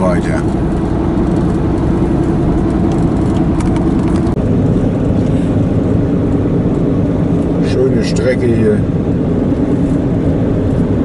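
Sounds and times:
car engine droning: 0.0s - 11.0s
tyre noise on road: 0.0s - 11.0s.

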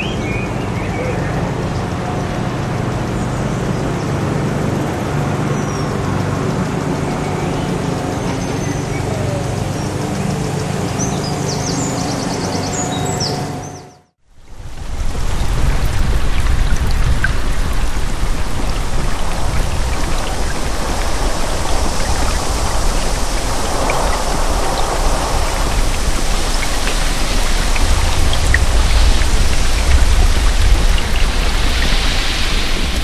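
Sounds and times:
steady rain hiss: 0.0s - 13.7s, 14.3s - 33.0s
rain drop ticks: 4.8s - 12.2s, 15.6s - 33.0s
low rumble: 5.8s - 33.0s.

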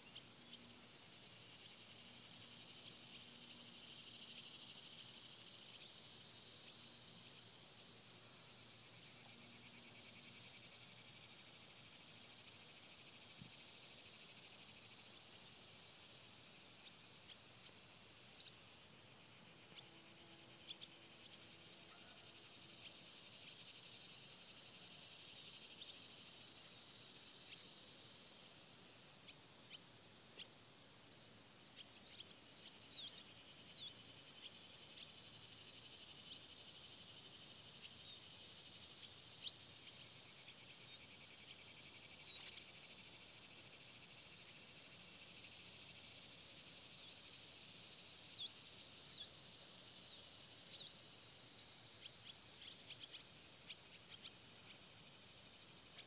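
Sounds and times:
thin continuous tone: 0.0s - 56.0s
insect trilling: 46.8s - 56.0s.

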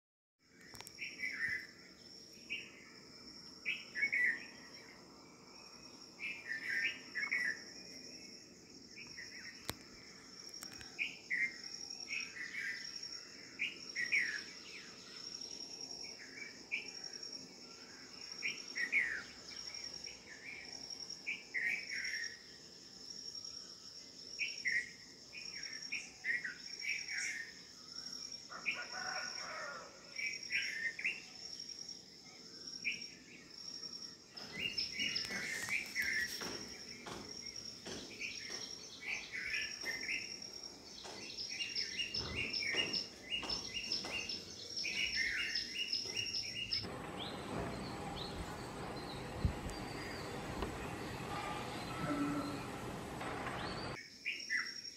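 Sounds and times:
cricket trill: 0.5s - 54.9s
bird chirps: 34.0s - 54.9s.

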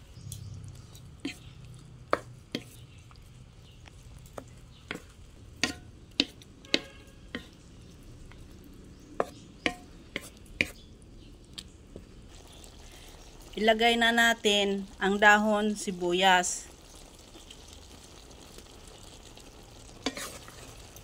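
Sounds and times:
utensil knocking and scraping pan: 4.9s - 7.6s, 20.0s - 20.6s.

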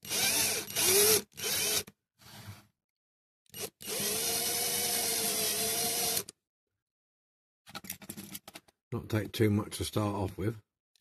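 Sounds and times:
cordless drill drilling into metal: 0.0s - 1.9s, 3.5s - 6.3s.

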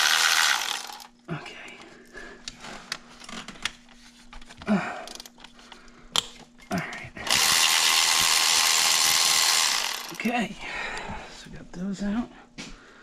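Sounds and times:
handheld power tool running: 0.0s - 1.1s, 7.2s - 10.2s.

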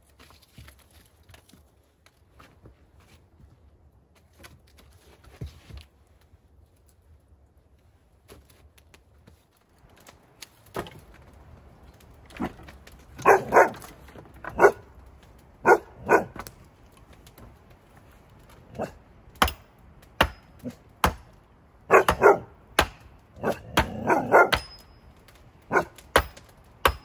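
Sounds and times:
dog barking: 13.2s - 13.8s, 14.5s - 14.9s, 15.6s - 16.4s, 21.9s - 22.5s, 23.4s - 24.6s, 25.7s - 26.0s.

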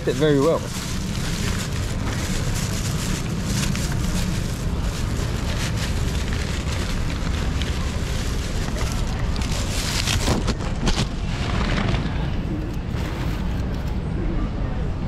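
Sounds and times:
wrapping crinkling and rustling: 0.0s - 12.0s
low rumble of wind or traffic: 0.0s - 15.0s.

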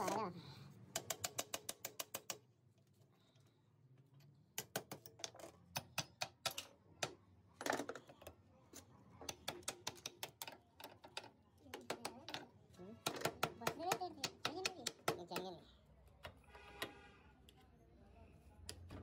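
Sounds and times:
small hammer tapping on metal: 0.9s - 2.4s, 4.6s - 7.2s, 9.2s - 15.6s.

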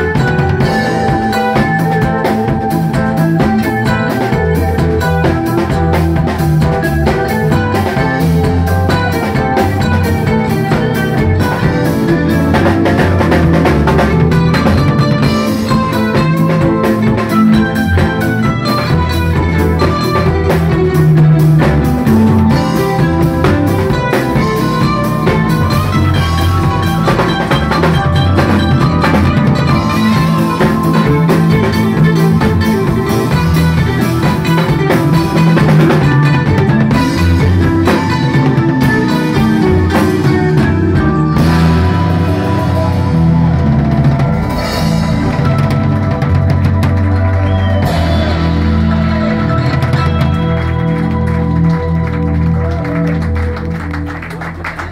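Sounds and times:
drum kit: 0.0s - 54.9s
electric bass: 0.0s - 54.9s
guitars: 0.0s - 54.9s.

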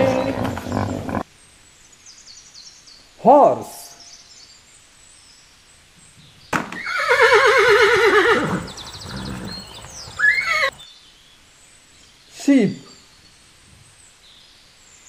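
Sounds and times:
horse whinnying: 0.0s - 1.2s, 6.7s - 10.8s.

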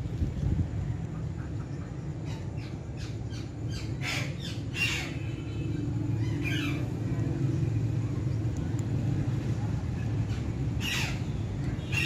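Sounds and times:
steady low rumble: 0.0s - 11.9s
parakeet squawking: 3.7s - 5.3s, 10.3s - 11.3s.

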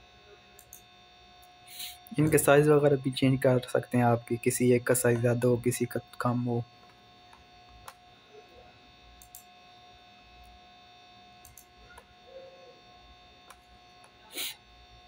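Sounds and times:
faint electrical hum: 0.0s - 15.0s
computer mouse clicks: 0.6s - 0.8s, 9.2s - 9.5s, 11.4s - 12.1s.

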